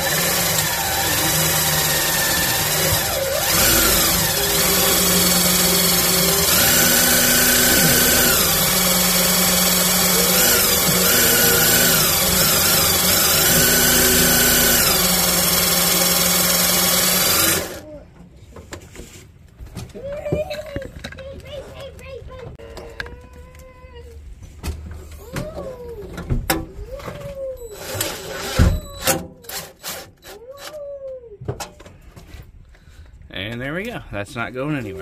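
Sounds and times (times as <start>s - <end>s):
cordless drill drilling metal: 0.0s - 17.8s.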